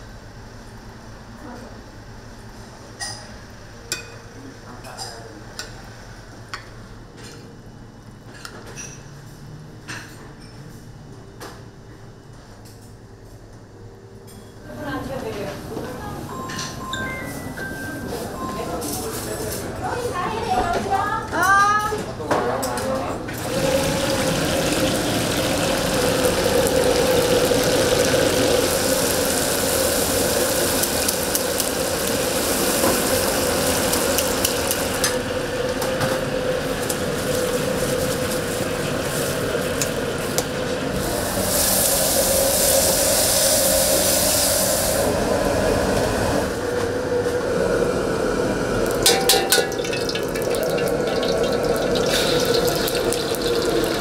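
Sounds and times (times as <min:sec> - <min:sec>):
wok burner roar: 0:00.0 - 0:04.7, 0:22.7 - 0:54.0
harsh hiss: 0:23.4 - 0:35.5, 0:40.9 - 0:45.2
water running from a tap: 0:23.4 - 0:45.0, 0:48.9 - 0:54.0
metal ladle clanking on wok: 0:49.0 - 0:52.9.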